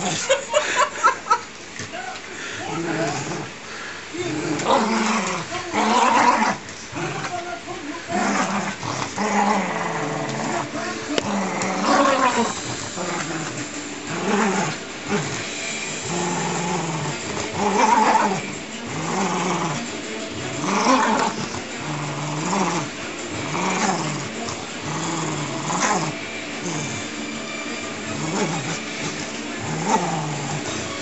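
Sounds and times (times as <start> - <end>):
dog growling in play: 0.0 - 0.6, 1.8 - 31.0.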